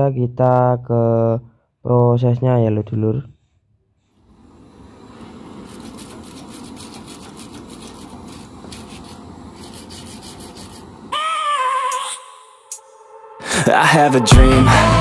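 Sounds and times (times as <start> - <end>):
gas flame gun rushing: 4.3 - 11.2
wire brush scrubbing metal: 4.9 - 11.1
music tune: 12.7 - 15.0.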